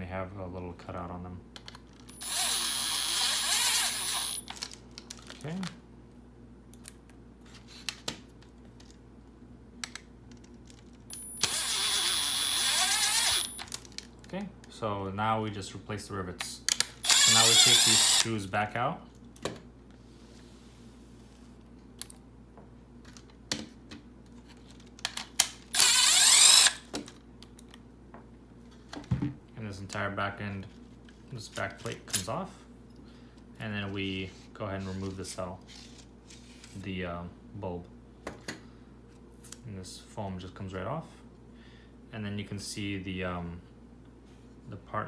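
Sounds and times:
power drill whining: 0:02.1 - 0:04.5, 0:11.4 - 0:13.6, 0:17.0 - 0:18.3, 0:25.7 - 0:26.8.

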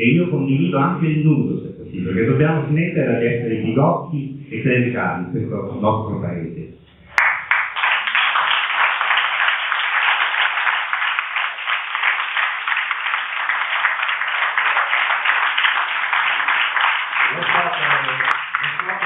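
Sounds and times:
audience applauding: 0:06.9 - 0:19.0.

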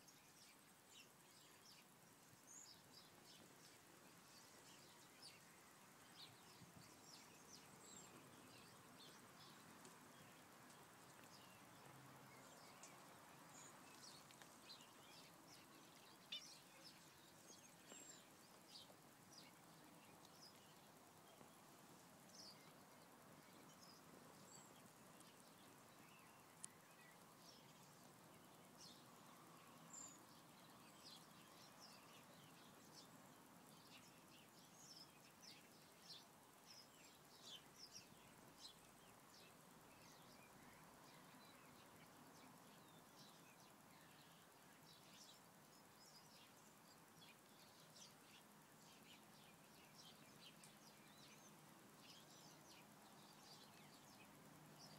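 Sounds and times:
outdoor background hiss: 0:00.0 - 0:54.9
small birds chirping: 0:00.0 - 0:54.9.

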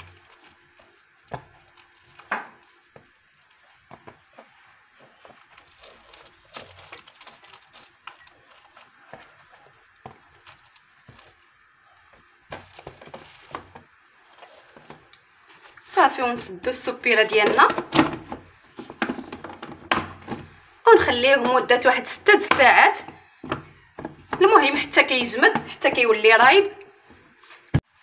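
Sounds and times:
cling film crinkling: 0:00.0 - 0:15.9.

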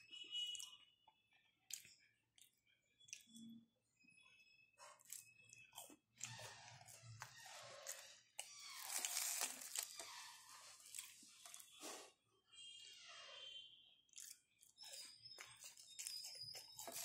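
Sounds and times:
crunchy food chewing: 0:04.8 - 0:12.1, 0:14.1 - 0:17.0.

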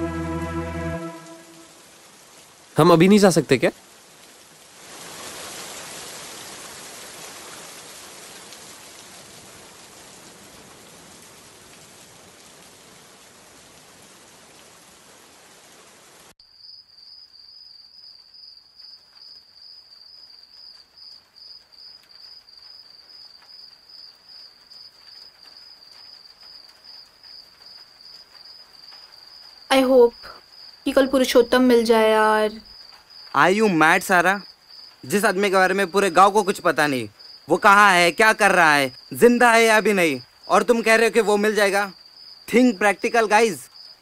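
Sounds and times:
rain hiss: 0:00.0 - 0:44.0
crickets chirping: 0:16.4 - 0:44.0.

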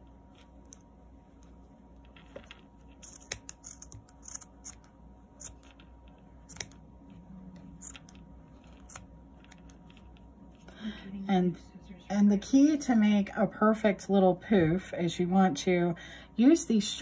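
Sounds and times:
scissors snipping yarn: 0:02.9 - 0:10.1.

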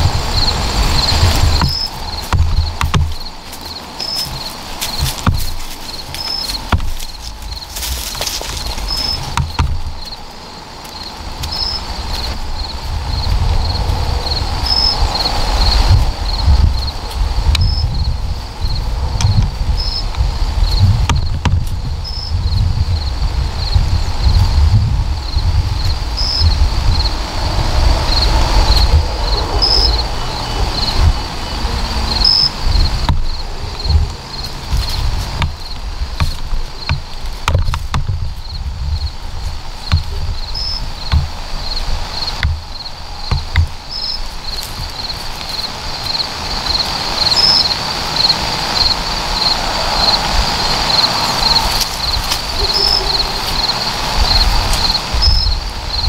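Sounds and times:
crickets chirping: 0:00.0 - 0:56.0
low rumble: 0:11.3 - 0:45.1.

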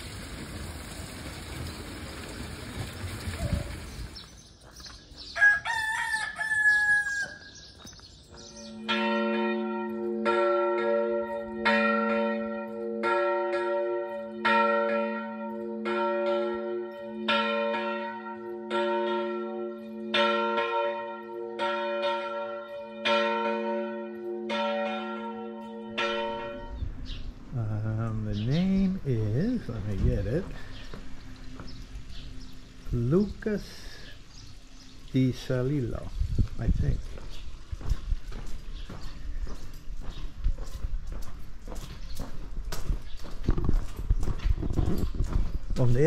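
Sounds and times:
rooster crowing: 0:05.3 - 0:07.6
church bell tolling: 0:08.4 - 0:27.3.

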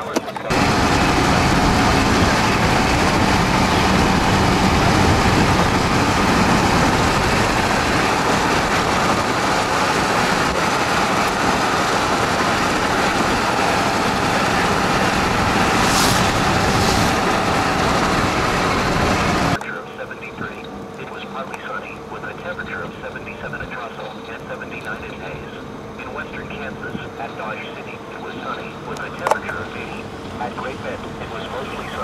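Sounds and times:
car road and wind noise: 0:00.1 - 0:19.6, 0:28.0 - 0:32.0
brief hissing: 0:15.8 - 0:17.2.

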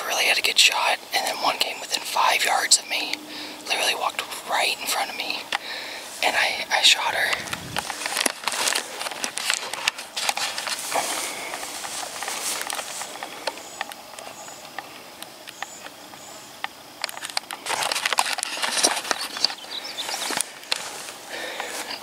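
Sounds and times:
footsteps through tall grass: 0:02.9 - 0:15.2, 0:17.1 - 0:22.0
clothing and gear rustling: 0:07.2 - 0:14.6, 0:17.1 - 0:22.0.

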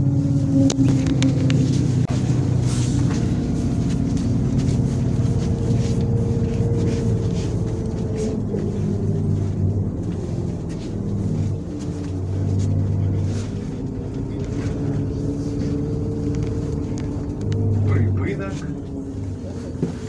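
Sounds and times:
bus engine drone: 0:00.0 - 0:20.0
high whine: 0:00.0 - 0:20.0.

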